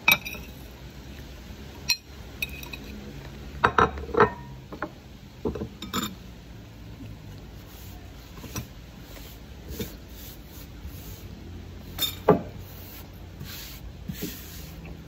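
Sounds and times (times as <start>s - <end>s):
hand sweeping crumbs on wood: 9.0s - 11.4s, 12.6s - 15.0s.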